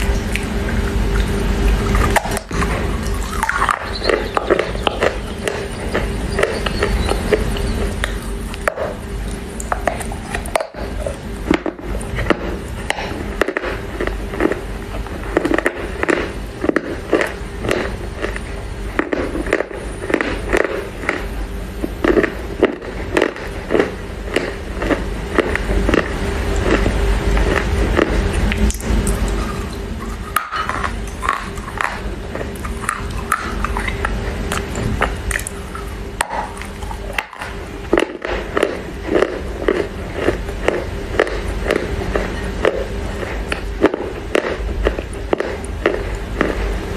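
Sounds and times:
crunchy chewing of clay: 0.0 - 46.9
steady hum: 0.0 - 46.9.

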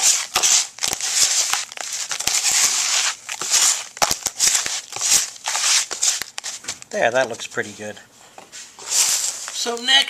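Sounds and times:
hands crunching wet sand and gravel: 0.0 - 7.2.

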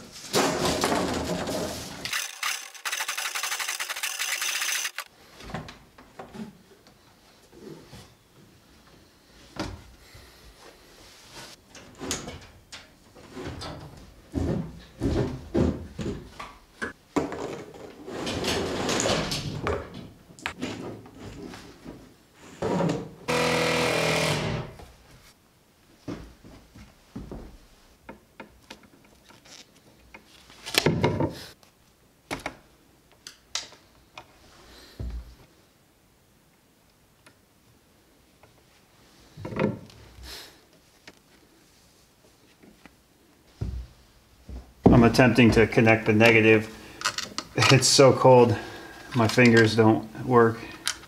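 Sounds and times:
machine whir: 2.1 - 5.1.

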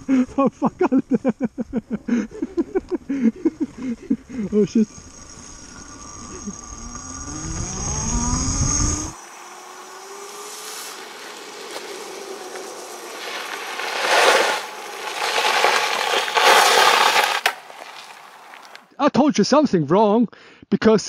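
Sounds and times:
electric motor whining: 3.4 - 18.8
tyres crunching on gravel: 9.2 - 18.8.

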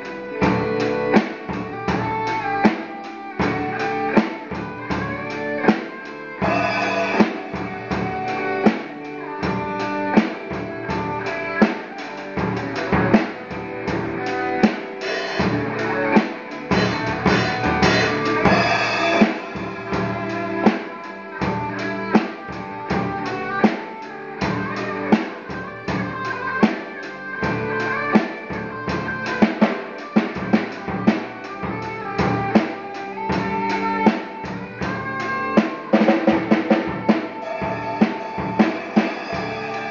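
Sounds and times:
drum kit beat: 0.0 - 39.9
electric guitar: 0.0 - 39.9.

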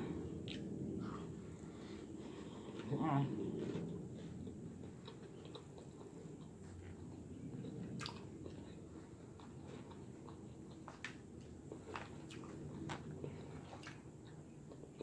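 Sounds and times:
chewing salad: 0.3 - 1.4, 2.3 - 15.0.

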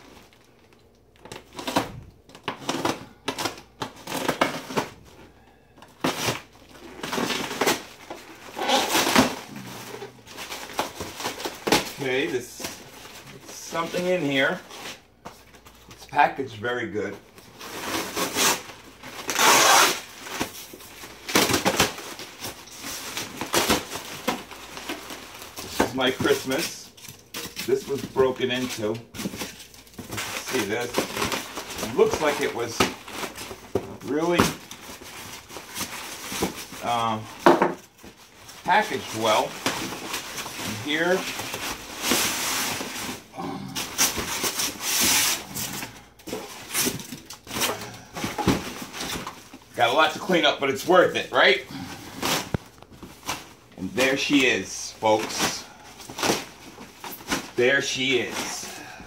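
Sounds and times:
plastic wrap tearing: 5.8 - 15.0, 17.4 - 59.0
styrofoam scraping and squeaking: 6.0 - 15.0, 17.5 - 37.3, 38.2 - 50.1.

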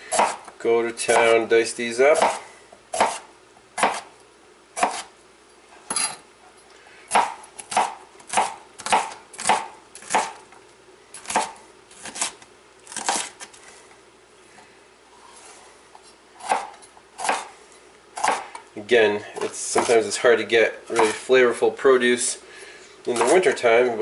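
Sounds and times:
knife chopping on plastic board: 0.1 - 0.5, 2.2 - 3.2, 3.8 - 4.1, 4.8 - 5.1, 7.1 - 10.4, 16.4 - 17.5, 18.2 - 18.6, 20.9 - 21.2, 23.1 - 23.5.

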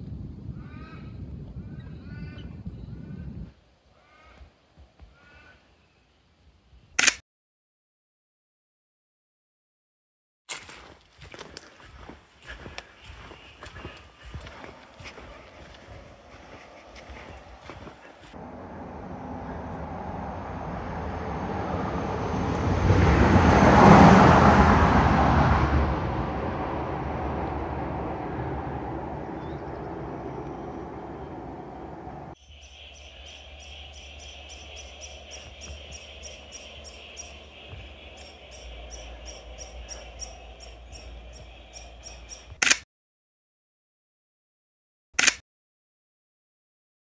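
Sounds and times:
vehicle crossing timber bridge: 12.0 - 42.5.

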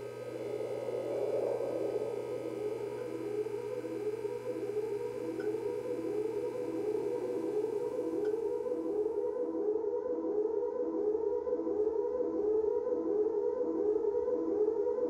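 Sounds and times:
siren rising sweep: 0.0 - 9.0
steady held tone: 0.0 - 9.3.

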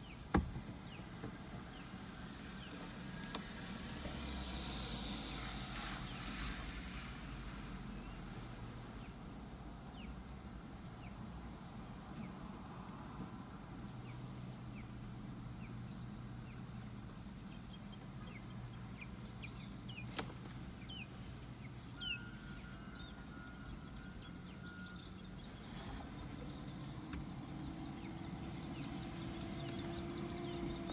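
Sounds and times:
distant road traffic rumble: 0.0 - 30.9
bird chirping: 17.5 - 30.9.

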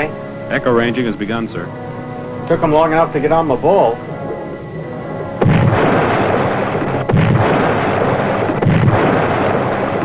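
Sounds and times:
distant depth charge booms: 4.0 - 10.0.

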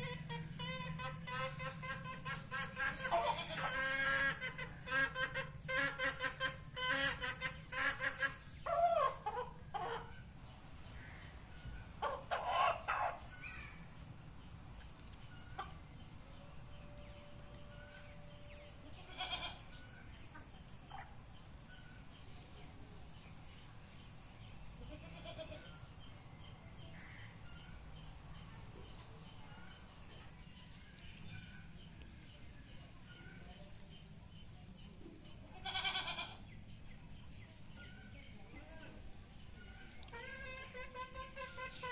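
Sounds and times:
chickens clucking: 0.0 - 23.8, 34.8 - 41.9
small birds chirping: 0.0 - 41.9.

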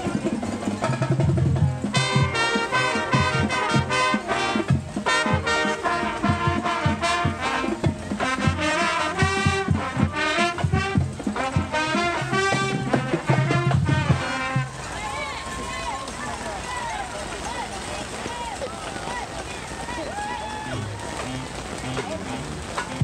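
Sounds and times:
swing brass music: 0.0 - 15.4, 20.2 - 23.0.

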